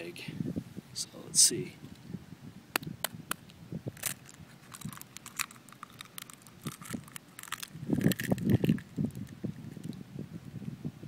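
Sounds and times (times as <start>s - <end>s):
eggshell cracking and crunching: 4.0s - 9.9s.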